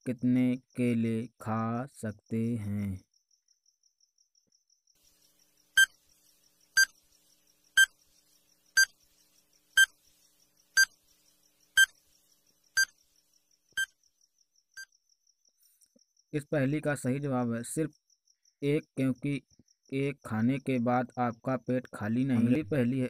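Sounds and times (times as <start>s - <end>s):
electronic timer beeps: 5.8s - 6.0s, 6.8s - 7.0s, 7.8s - 8.0s, 8.8s - 9.0s, 9.8s - 10.0s, 10.8s - 11.0s, 11.8s - 12.0s, 12.8s - 13.0s.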